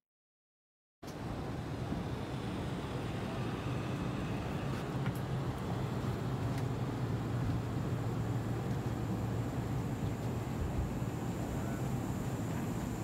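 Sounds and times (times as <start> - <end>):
aircraft cabin hum and hiss: 1.0 - 13.0.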